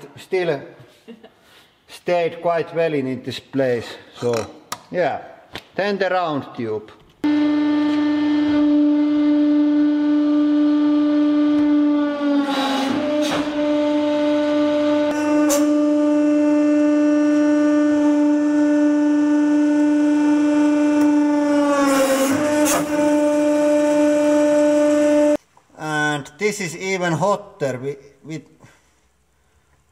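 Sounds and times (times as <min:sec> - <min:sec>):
hydraulic press humming: 0:07.2 - 0:25.4.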